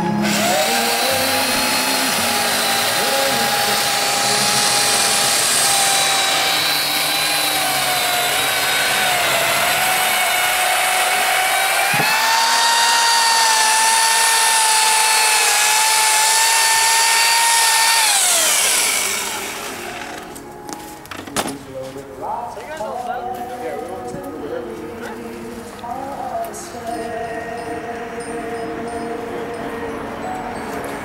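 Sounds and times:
power tool motor whining: 0.0 - 20.5.

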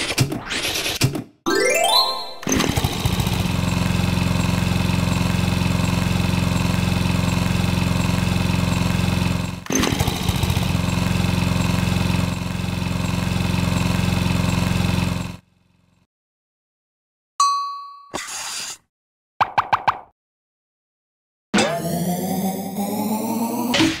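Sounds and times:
motor-like buzzing: 2.4 - 16.1.

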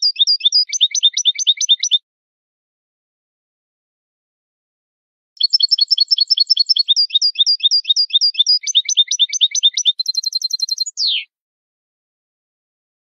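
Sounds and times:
goldfinch singing: 0.0 - 2.0, 5.4 - 11.3.

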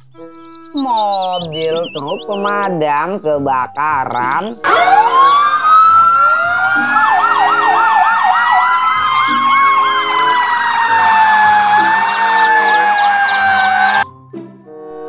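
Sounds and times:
fast warbling siren: 4.6 - 14.0
wailing siren: 4.6 - 14.0.

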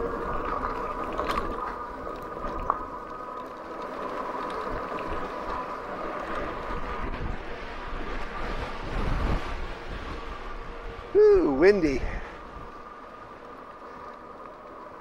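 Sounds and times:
tyres rolling on gravel: 0.0 - 15.0
wind on microphone: 6.4 - 12.9.

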